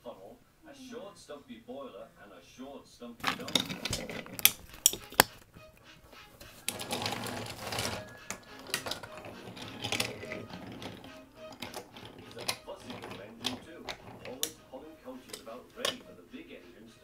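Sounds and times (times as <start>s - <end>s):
wheels rattling over wooden track: 3.2s - 4.7s, 6.6s - 16.1s
toy train clicks: 3.4s - 5.4s, 6.6s - 16.1s.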